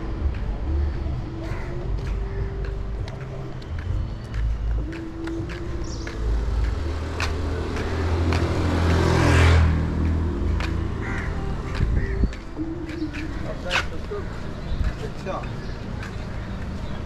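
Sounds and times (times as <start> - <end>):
vehicle passing by: 5.4 - 17.0.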